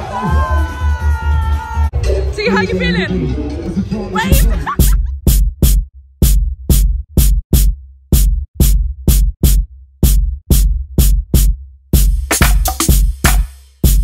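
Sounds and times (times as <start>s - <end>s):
electronic dance music: 0.0s - 14.0s.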